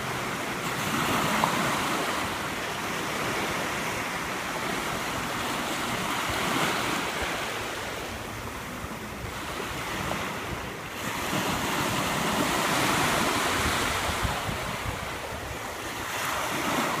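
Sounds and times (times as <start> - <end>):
small waves breaking on shore: 0.0 - 17.0
wind on microphone: 0.0 - 17.0.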